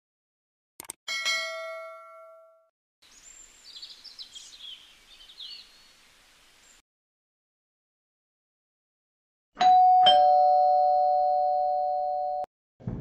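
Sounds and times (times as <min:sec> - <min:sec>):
bell ding: 0:01.1 - 0:02.6
birds chirping: 0:03.0 - 0:06.8.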